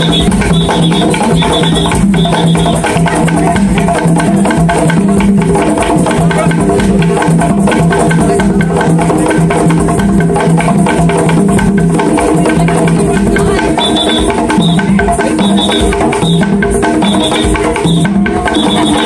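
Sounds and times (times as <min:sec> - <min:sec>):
hand drums playing: 0:00.0 - 0:19.0.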